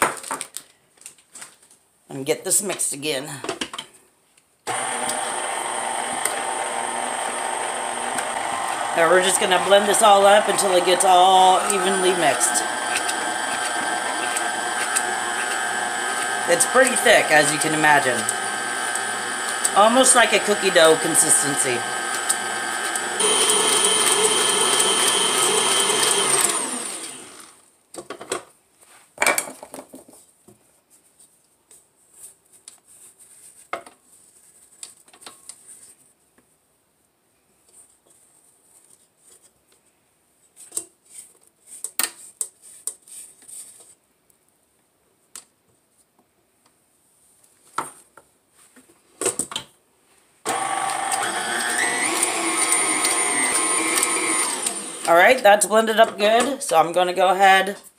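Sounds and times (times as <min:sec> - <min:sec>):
electric stand mixer humming: 0:04.7 - 0:27.6, 0:50.5 - 0:55.4.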